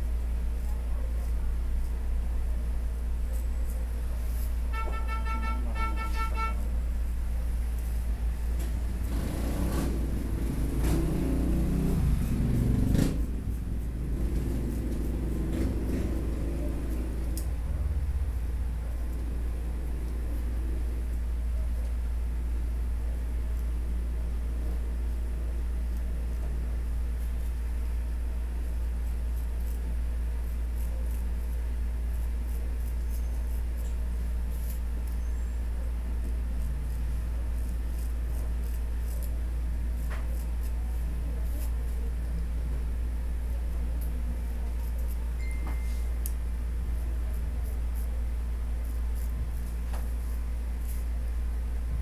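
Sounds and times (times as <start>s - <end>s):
low rumble of street traffic: 0.0s - 52.0s
steady low hum: 0.0s - 52.0s
razor scraping stubble: 7.4s - 17.6s, 25.0s - 51.7s
vehicle passing: 9.0s - 13.3s.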